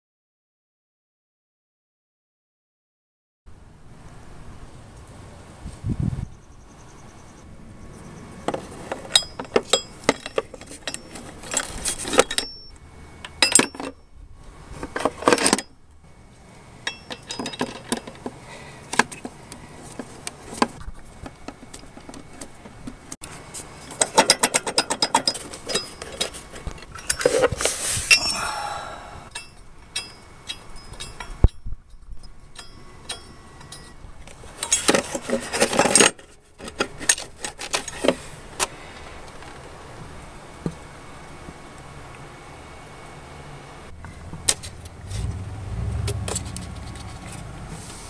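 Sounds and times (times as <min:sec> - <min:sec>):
metal tools clinking: 0:09.0 - 0:12.8, 0:13.4 - 0:14.1, 0:16.8 - 0:18.2, 0:23.8 - 0:27.5, 0:28.1 - 0:28.5, 0:29.3 - 0:34.0, 0:34.6 - 0:38.0.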